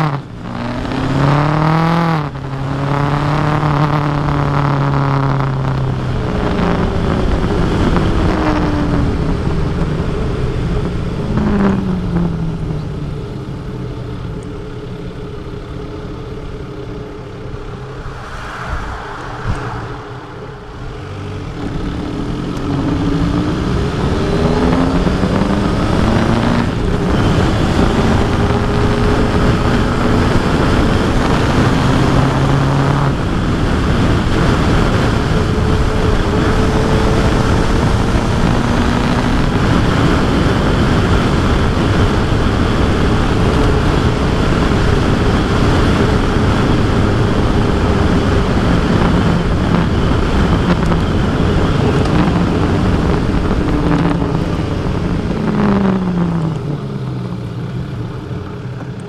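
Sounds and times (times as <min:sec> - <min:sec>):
motorcycle engine running: 0:00.0 - 0:18.2, 0:19.6 - 0:59.0
wind rushing over microphone: 0:17.3 - 0:59.0.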